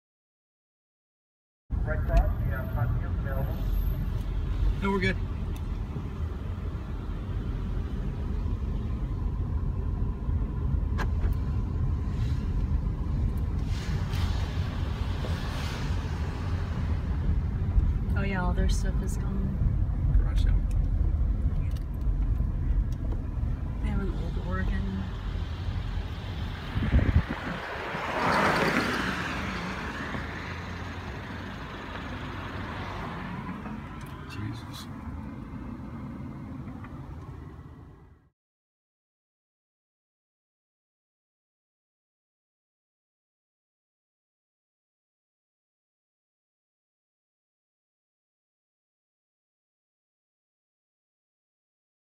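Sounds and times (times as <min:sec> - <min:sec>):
car engine and tyres rumbling: 0:01.7 - 0:38.3.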